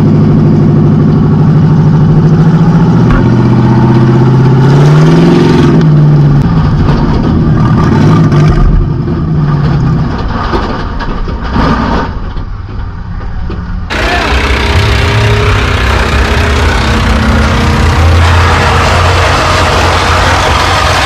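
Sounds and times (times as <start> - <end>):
car engine revving and rumbling: 0.0 - 21.0
rough rattling: 13.9 - 21.0.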